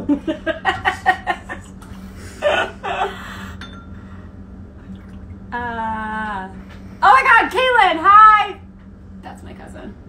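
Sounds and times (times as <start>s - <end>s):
person laughing and gasping: 0.0s - 3.6s
faint low hum: 0.0s - 10.0s.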